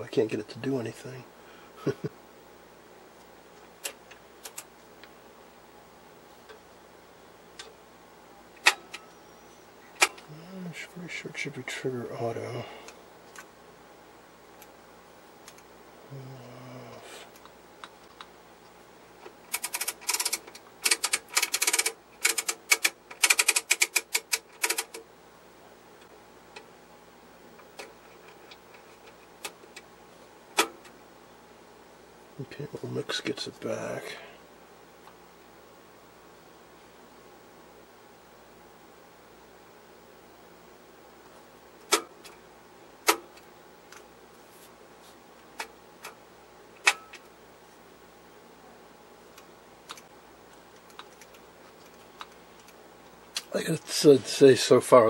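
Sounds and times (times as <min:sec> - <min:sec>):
switches and knobs clicking: 0:08.6 - 0:09.2, 0:09.9 - 0:10.3, 0:41.8 - 0:42.4, 0:43.0 - 0:44.1, 0:46.8 - 0:47.3, 0:49.3 - 0:53.5
knobs and switches clicking: 0:46.8 - 0:47.3.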